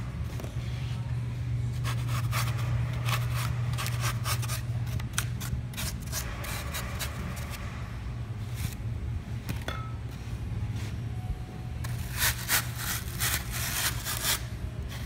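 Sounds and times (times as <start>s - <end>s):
steady low hum: 0.0s - 15.0s
carving tool scraping foam: 11.9s - 15.0s.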